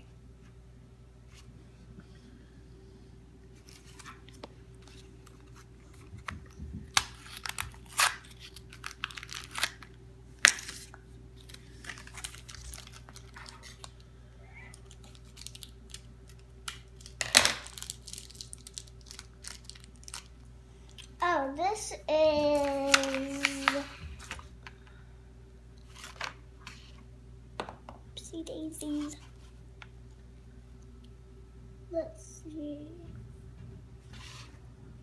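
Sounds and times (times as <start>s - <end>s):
plastic wrapper crinkling and tearing: 3.6s - 14.1s, 14.7s - 21.2s.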